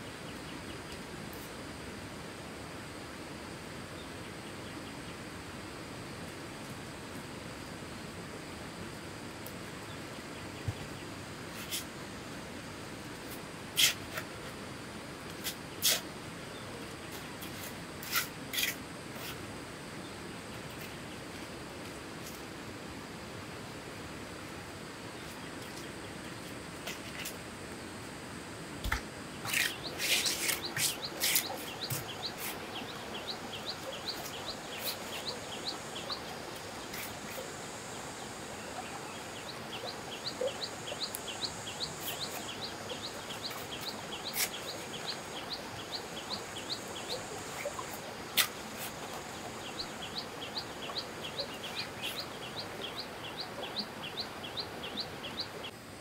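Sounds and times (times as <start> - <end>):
bird chirping: 28.9 - 55.8.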